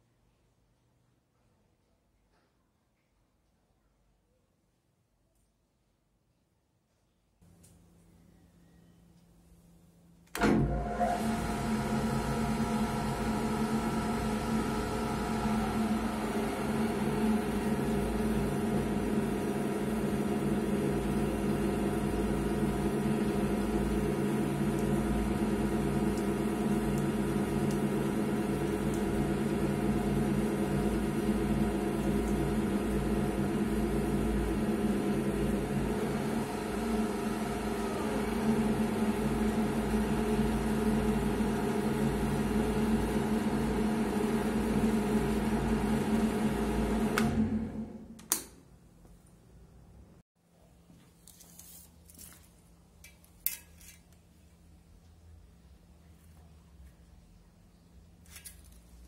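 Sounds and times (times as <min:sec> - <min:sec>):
drill press motor humming: 0:10.3 - 0:48.1.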